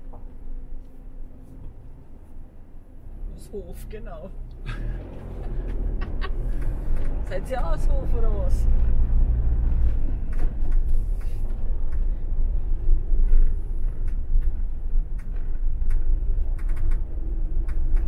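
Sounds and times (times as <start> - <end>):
engine and tyre rumble: 0.0 - 18.0
gravel clicking under tyres: 4.4 - 18.0.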